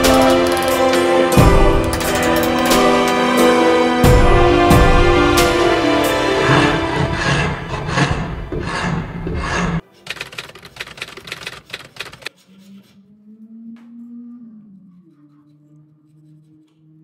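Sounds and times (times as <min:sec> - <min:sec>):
hand rasp filing wood: 0:06.0 - 0:09.8.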